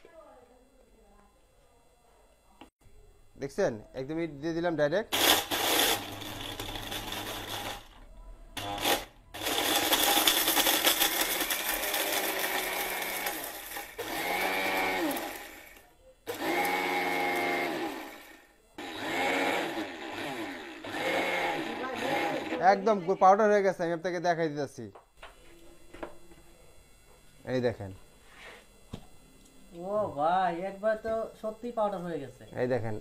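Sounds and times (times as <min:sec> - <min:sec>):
mixer grinder grinding brick: 0:05.1 - 0:23.0.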